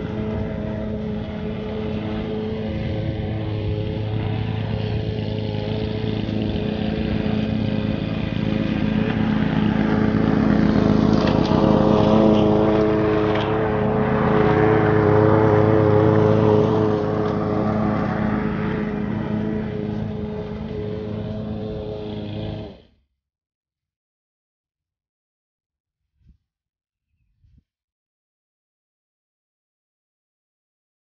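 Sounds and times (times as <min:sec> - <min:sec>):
lawn mower engine running: 0:00.0 - 0:22.9.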